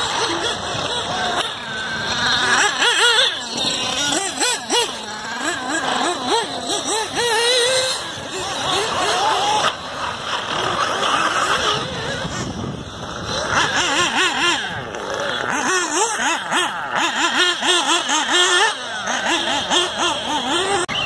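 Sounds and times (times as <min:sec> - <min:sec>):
rc buggy engines whining: 0:00.0 - 0:21.0.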